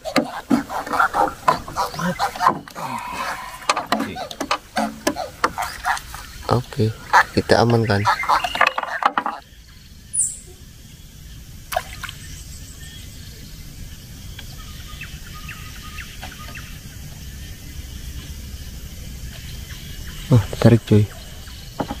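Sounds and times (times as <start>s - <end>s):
small bird chirping: 1.0s - 18.3s.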